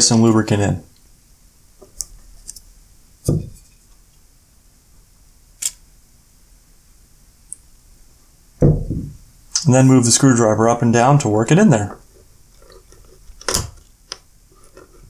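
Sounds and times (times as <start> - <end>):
dull knock: 3.3 - 3.6, 8.6 - 9.2.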